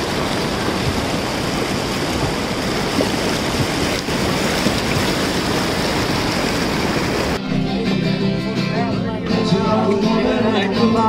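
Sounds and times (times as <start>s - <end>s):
river rushing over rocks: 0.0s - 7.4s.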